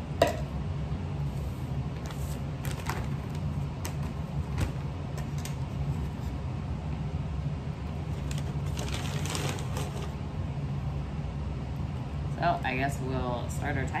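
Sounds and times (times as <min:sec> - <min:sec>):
steady low hum: 0:00.0 - 0:14.0
towel and paper bag rustling: 0:08.2 - 0:10.2.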